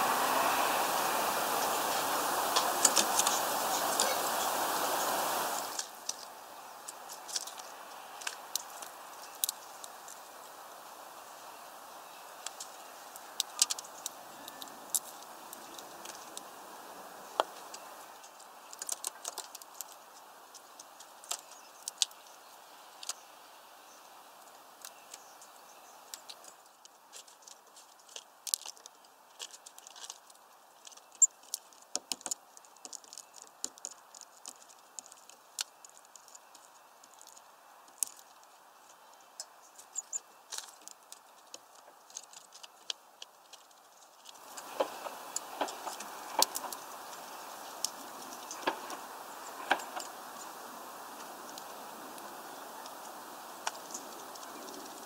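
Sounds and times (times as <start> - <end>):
faint steady hiss: 0.0 - 55.0
bird pecking on wooden feeder: 30.8 - 38.3.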